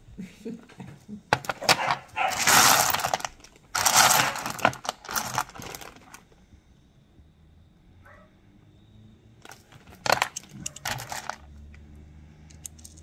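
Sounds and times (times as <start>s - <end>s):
stones clicking together: 1.3s - 6.2s, 9.4s - 11.8s, 12.5s - 13.0s
stones rasping against each other: 1.5s - 6.2s, 9.5s - 11.5s.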